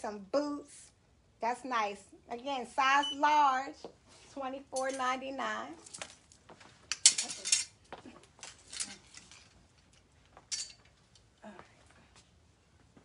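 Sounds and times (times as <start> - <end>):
clothes hangers clinking: 4.7 - 5.2, 6.9 - 7.8, 8.4 - 10.9
hangers clattering: 4.8 - 5.2, 6.9 - 7.8, 8.4 - 11.0.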